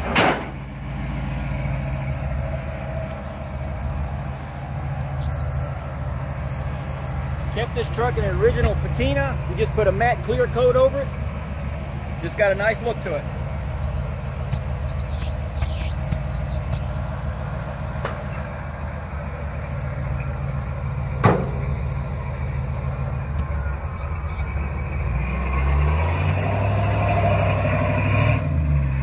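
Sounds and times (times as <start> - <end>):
pickup engine idling: 0.0 - 25.4
sharp knock: 21.2 - 21.7.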